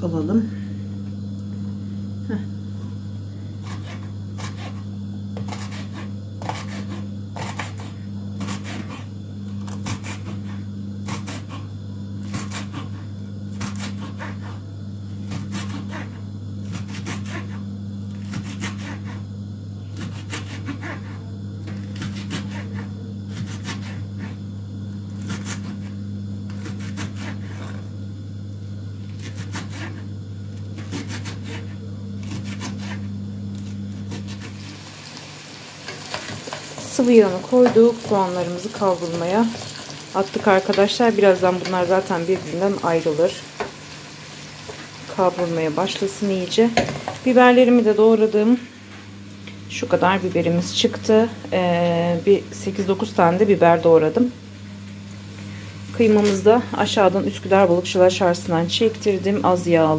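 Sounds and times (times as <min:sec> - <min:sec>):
knife chopping on wooden board: 0:30.8 - 0:33.0.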